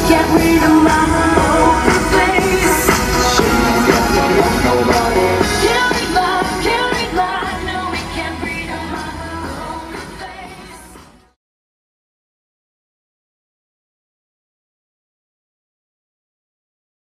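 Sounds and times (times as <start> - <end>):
pop song with sung vocal: 0.0 - 11.4.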